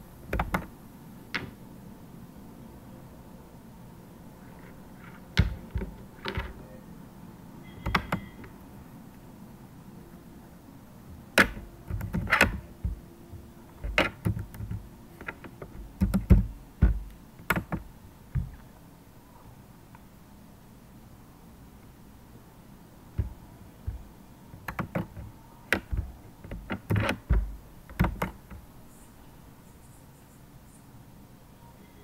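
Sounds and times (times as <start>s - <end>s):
keyboard keystrokes: 7.8s - 8.4s, 11.4s - 13.0s, 13.8s - 17.8s, 24.6s - 28.6s.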